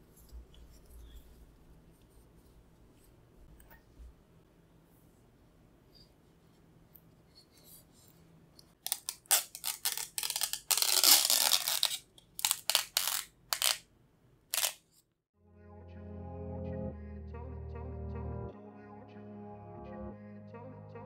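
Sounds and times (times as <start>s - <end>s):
plastic film peeling: 8.8s - 13.9s, 14.5s - 14.8s
background music: 15.4s - 21.0s.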